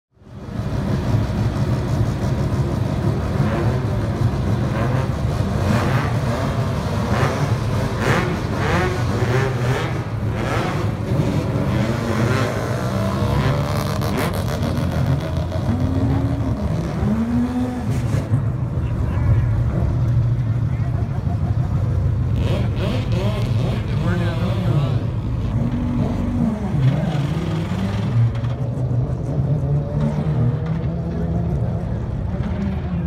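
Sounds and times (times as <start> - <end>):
race car engines idling: 0.2 - 33.0
engine revs rising and falling: 4.6 - 18.3, 22.3 - 32.7.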